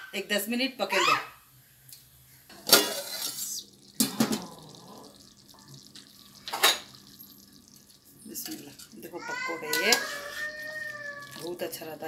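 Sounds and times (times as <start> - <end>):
hissing watery bursts: 2.9 - 12.0.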